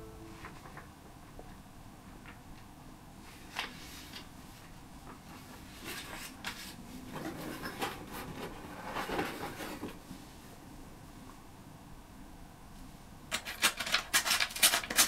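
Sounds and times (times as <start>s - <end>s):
paper rustling: 13.3s - 15.0s.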